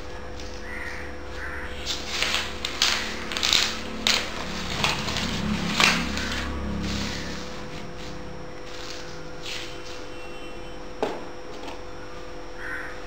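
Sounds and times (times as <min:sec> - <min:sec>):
rustling and crinkling: 0:00.4 - 0:10.1.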